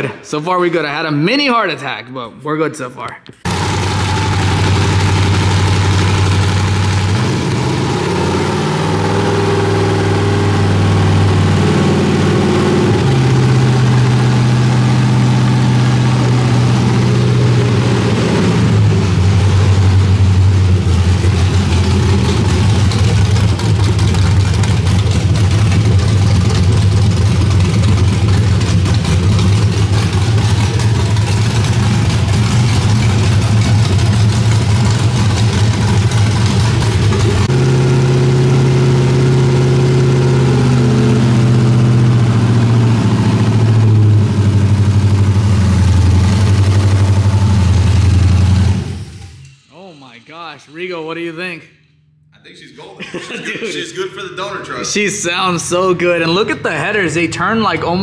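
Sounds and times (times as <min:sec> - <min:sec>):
engine revving and idling: 0:03.4 - 0:49.6.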